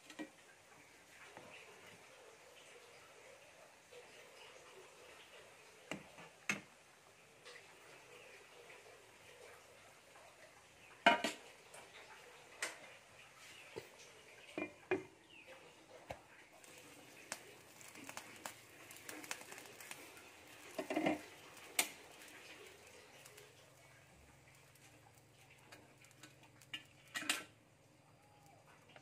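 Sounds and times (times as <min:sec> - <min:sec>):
cookware clinks and clunks: 0:11.0 - 0:11.4, 0:26.7 - 0:27.5.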